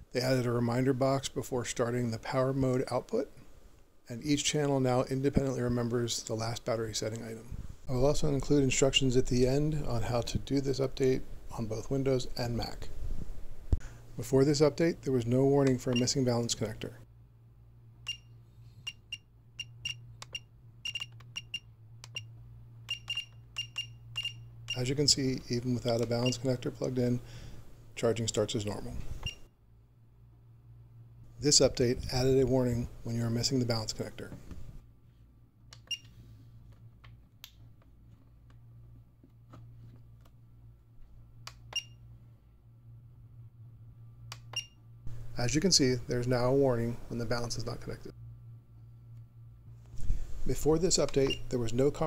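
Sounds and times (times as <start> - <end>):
low steady hum: 0.0 - 52.0
short high-pitched beeps: 18.9 - 22.3, 22.9 - 24.8
button and scroll-wheel clicks: 19.8 - 22.2.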